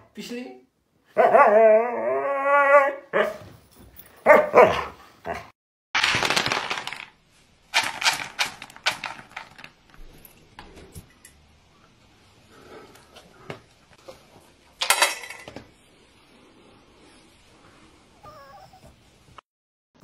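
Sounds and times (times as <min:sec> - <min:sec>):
dog whine-howling: 0:01.2 - 0:03.1, 0:18.2 - 0:19.0
kibble poured into a bowl: 0:06.0 - 0:09.8.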